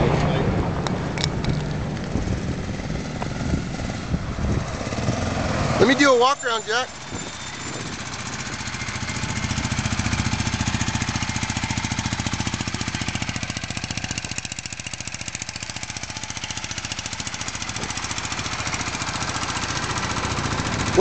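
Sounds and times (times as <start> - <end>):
motorcycle engine idling: 6.2 - 21.0.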